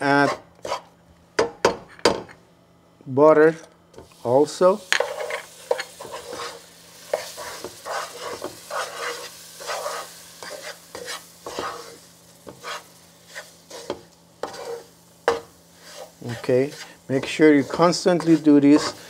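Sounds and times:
wooden spoon scraping pot: 0.1s - 0.9s, 4.9s - 19.0s
oil and butter sizzling: 4.0s - 19.0s.

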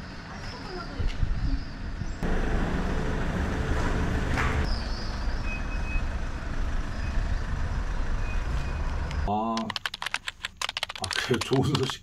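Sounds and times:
van engine driving: 2.2s - 9.3s.

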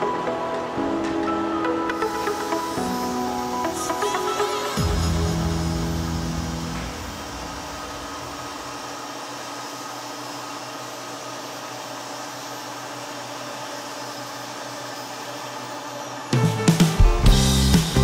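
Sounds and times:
metal lathe running: 0.2s - 16.3s.

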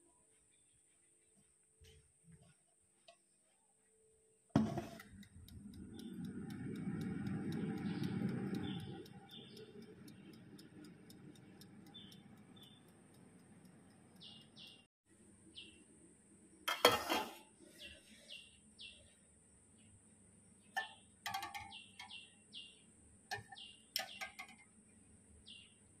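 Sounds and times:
low handling rumble: 5.0s - 12.4s
wind-up timer ticking: 5.0s - 14.9s
birds chirping: 5.1s - 14.9s.

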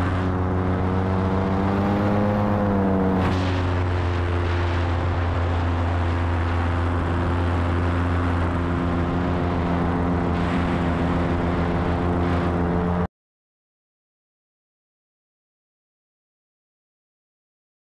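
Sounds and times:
paramotor engine and propeller: 0.0s - 13.1s.

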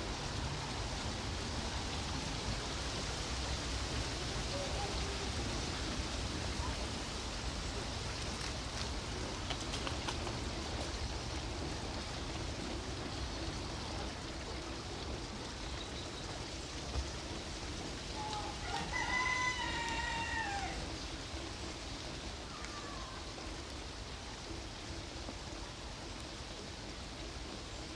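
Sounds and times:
rushing background hiss: 0.0s - 27.9s
rooster crowing: 18.2s - 20.9s.

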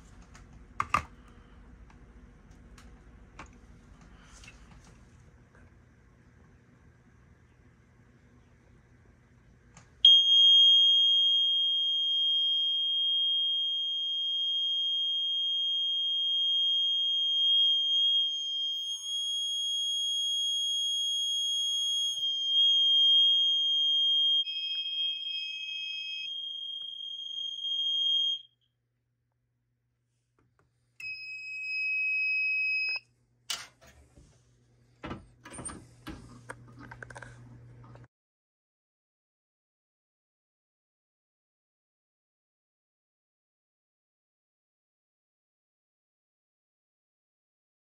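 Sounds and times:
high-pitched alarm tone: 10.1s - 28.5s.

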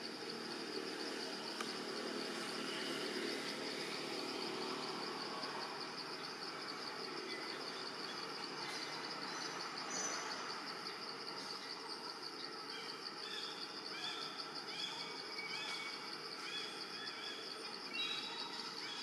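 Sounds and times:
high pulsing insect trill: 0.0s - 19.0s.

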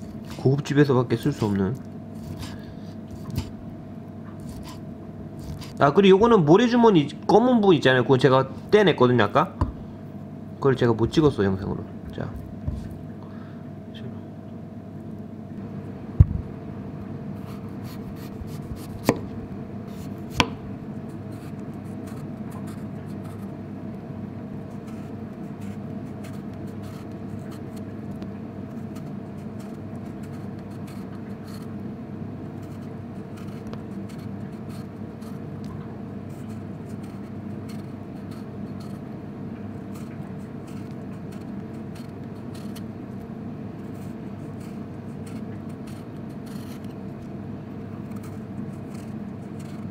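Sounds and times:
knife peeling vegetable: 0.0s - 0.6s, 1.2s - 3.6s, 4.4s - 4.8s, 5.4s - 5.9s, 17.4s - 19.3s, 19.9s - 23.6s, 24.6s - 31.8s, 32.5s - 35.5s, 36.3s - 39.1s, 39.7s - 47.4s, 48.0s - 49.9s
steady low hum: 0.0s - 49.9s
knife knocking on cutting board: 20.4s - 20.6s.

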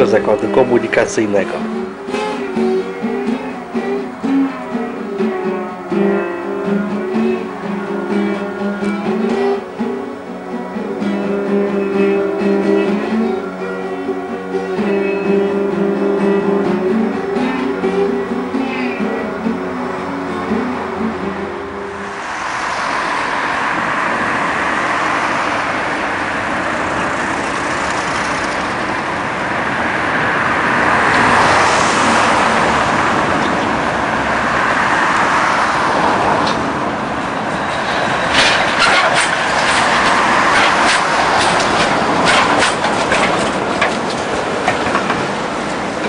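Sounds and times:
tram rumbling: 0.0s - 46.0s
wheels clattering on rails: 14.8s - 46.0s.

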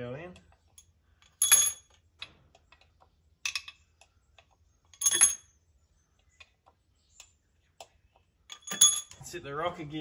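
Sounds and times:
pushrods clinking on metal: 0.7s - 2.0s, 4.9s - 5.5s, 8.5s - 9.3s.

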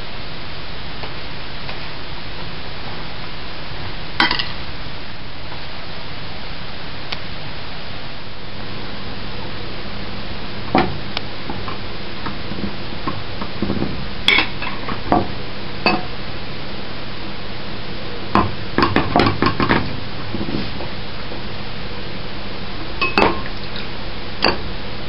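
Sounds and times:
steady hiss: 0.0s - 25.0s
utensils clinking on dishes: 23.0s - 24.6s.

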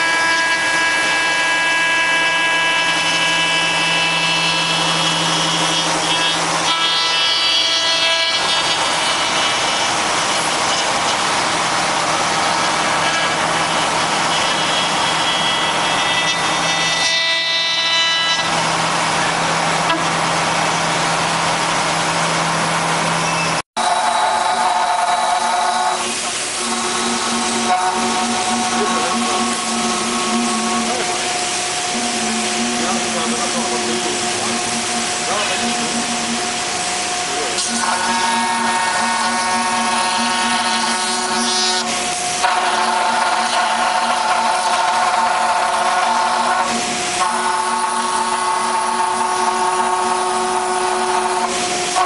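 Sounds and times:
router bit cutting wood: 0.0s - 11.7s, 23.8s - 52.0s
router spindle whine: 0.0s - 23.0s, 23.8s - 52.0s.

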